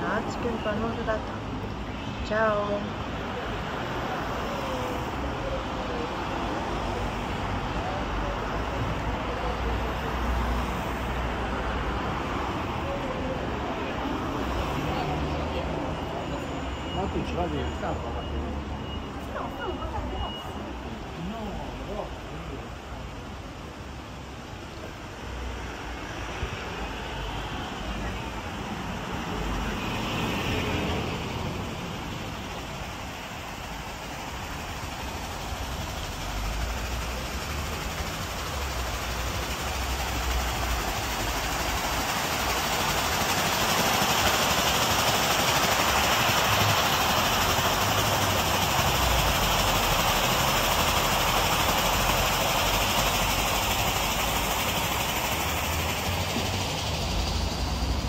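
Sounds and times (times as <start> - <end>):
fountain water splashing: 0.0 - 58.0
street traffic: 0.0 - 58.0.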